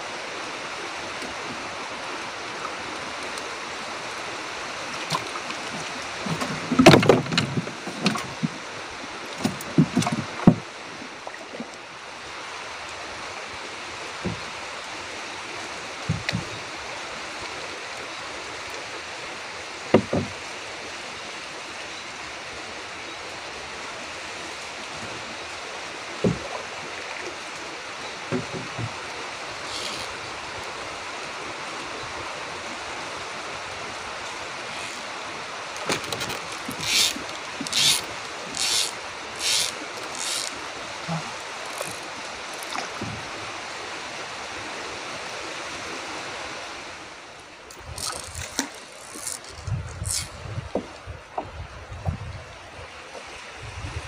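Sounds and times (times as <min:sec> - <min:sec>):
knocks against wooden boat: 0:06.3 - 0:08.6, 0:09.4 - 0:10.7, 0:14.2 - 0:14.5, 0:16.0 - 0:16.5, 0:19.9 - 0:20.4, 0:26.2 - 0:26.6, 0:28.3 - 0:29.0.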